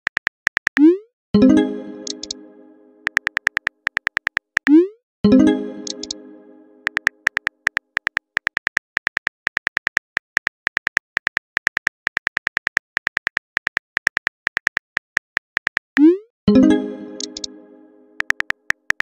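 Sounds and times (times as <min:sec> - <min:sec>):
phone keyboard typing clicks: 0:00.0 - 0:00.9, 0:02.0 - 0:02.4, 0:03.0 - 0:04.8, 0:05.8 - 0:06.2, 0:06.8 - 0:16.1, 0:17.2 - 0:17.5, 0:18.2 - 0:19.0
message sent tone: 0:00.8 - 0:03.3, 0:04.7 - 0:07.2, 0:16.5 - 0:18.4.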